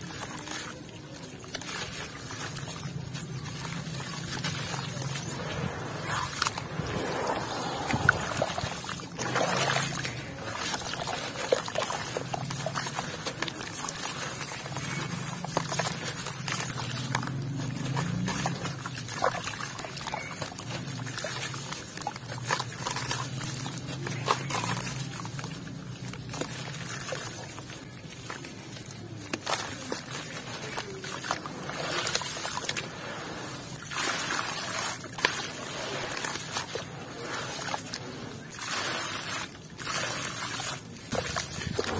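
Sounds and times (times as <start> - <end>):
water splashing in basin: 0.0 - 41.9
wet cement crumbling by hand: 0.0 - 41.9.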